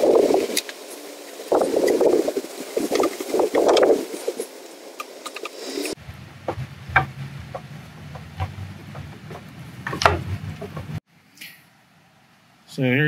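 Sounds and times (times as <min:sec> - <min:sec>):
low steady hum: 0:06.0 - 0:11.0
pipe knocking and rubbing: 0:06.4 - 0:11.0.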